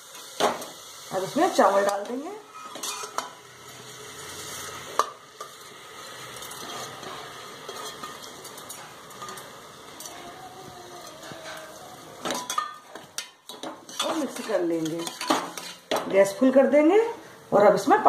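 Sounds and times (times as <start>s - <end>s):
vegetables sizzling in oil: 0.0s - 18.0s
stirring: 12.4s - 16.0s.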